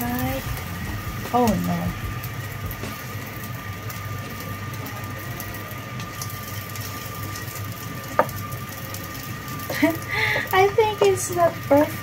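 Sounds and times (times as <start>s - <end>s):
faint frying: 0.0s - 12.0s
motor hum with whine: 0.0s - 12.0s
spatula tapping a pan: 8.1s - 8.4s, 10.4s - 11.4s.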